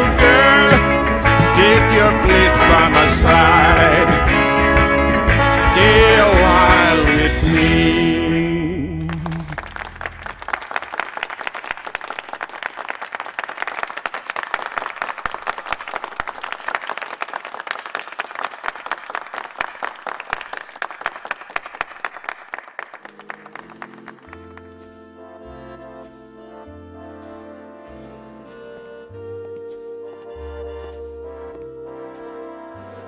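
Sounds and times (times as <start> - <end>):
music: 0.0 - 10.6, 23.0 - 33.0
crowd applauding: 4.8 - 24.9.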